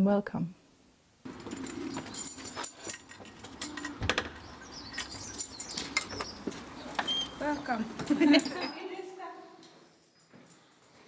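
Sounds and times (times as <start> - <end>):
keys jangling: 1.3 - 6.4, 8.0 - 11.0.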